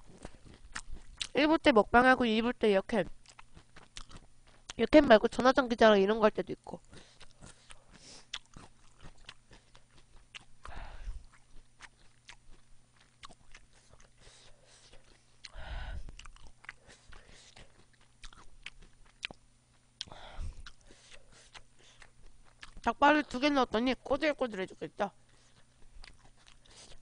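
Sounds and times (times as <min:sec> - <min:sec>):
wet chewing: 0:00.0 - 0:01.4, 0:03.1 - 0:04.9, 0:06.8 - 0:23.4, 0:25.2 - 0:27.0.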